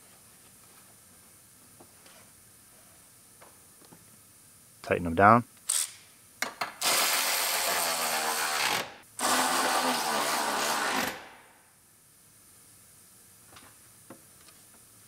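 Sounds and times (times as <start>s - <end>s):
electric ratchet whirring: 6.8s - 11.3s.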